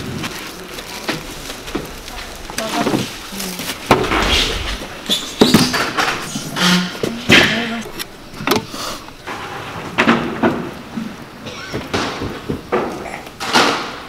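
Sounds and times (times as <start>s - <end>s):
plastic bags crinkling: 0.0s - 4.0s.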